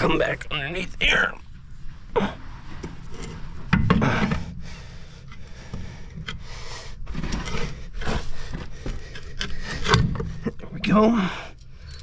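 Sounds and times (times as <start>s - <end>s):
scraping on metal: 2.4s - 10.6s.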